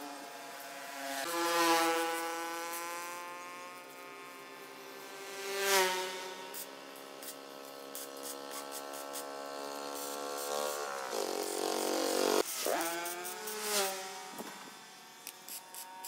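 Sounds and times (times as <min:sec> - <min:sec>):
angle grinder whining on steel: 0:06.6 - 0:16.0.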